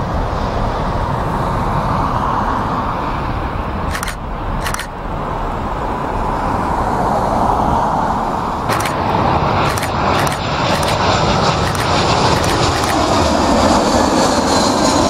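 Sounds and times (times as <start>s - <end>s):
jet engine rumble: 0.0s - 15.0s
brief clicks: 3.9s - 5.0s, 8.7s - 9.0s, 9.7s - 11.0s, 11.6s - 13.0s.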